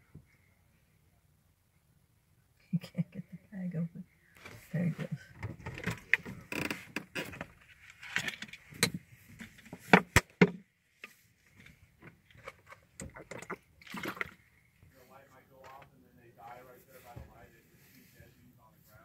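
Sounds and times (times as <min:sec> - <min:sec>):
clicks and knocks in a car: 0:08.2 - 0:10.6.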